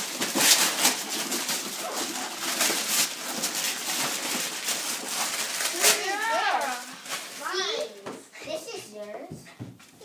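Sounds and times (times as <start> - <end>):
wrapping paper tearing and rustling: 0.0 - 8.0.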